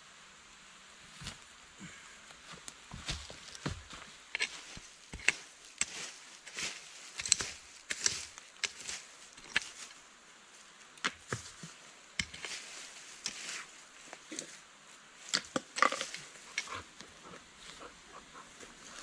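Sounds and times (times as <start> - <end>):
hand tool striking earth and stone: 3.1 - 9.9, 11.0 - 12.6, 13.2 - 13.6, 15.3 - 16.8.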